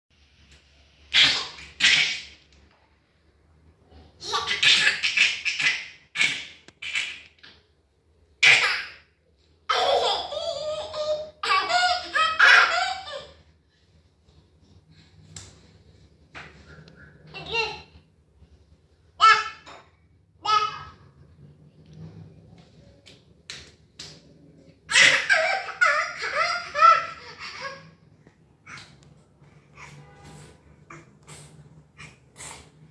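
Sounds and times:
baby laughing: 4.2s - 7.3s, 9.7s - 13.4s, 24.9s - 28.0s.

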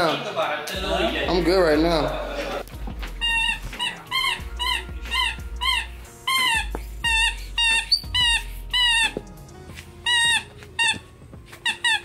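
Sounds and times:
dog whining: 3.2s - 9.2s.

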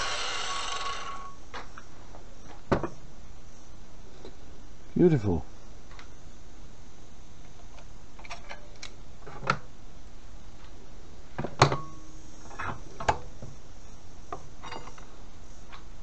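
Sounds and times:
ringing metal clank: 14.6s - 15.0s.

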